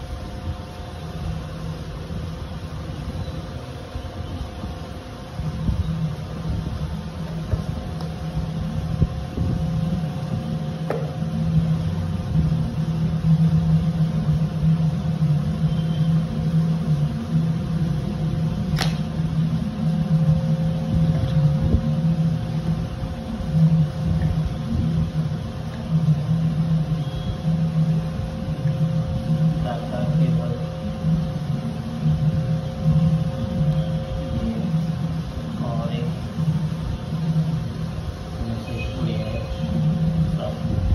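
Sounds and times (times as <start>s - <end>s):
motor humming: 0.0s - 40.9s
sharp click: 18.7s - 19.1s.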